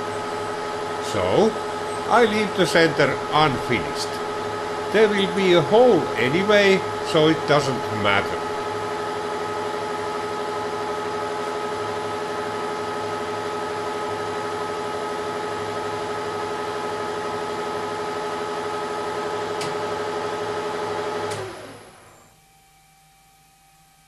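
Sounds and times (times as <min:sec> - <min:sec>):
faint hum: 0:00.0 - 0:16.3
lathe whining: 0:00.0 - 0:22.1.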